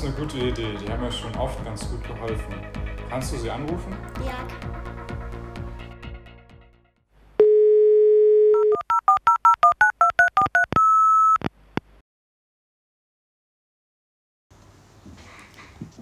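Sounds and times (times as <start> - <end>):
touch-tone keypad beeps: 8.5 - 11.4.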